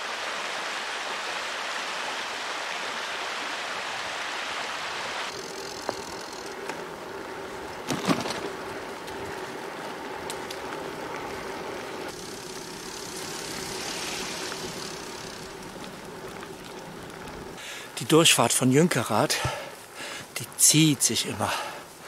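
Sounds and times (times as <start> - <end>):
bicycle tyre and wind noise: 3.8 - 17.9.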